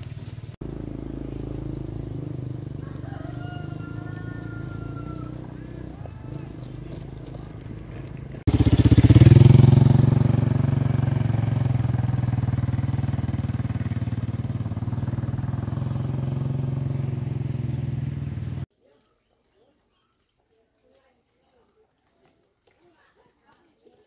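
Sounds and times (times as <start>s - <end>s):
small motorcycle engine running: 0.0s - 18.7s.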